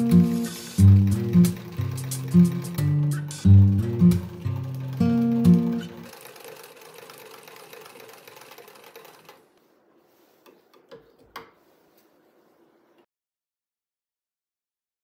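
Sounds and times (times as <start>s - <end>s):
acoustic guitar music: 0.0s - 6.1s
sewing machine running: 0.0s - 9.5s.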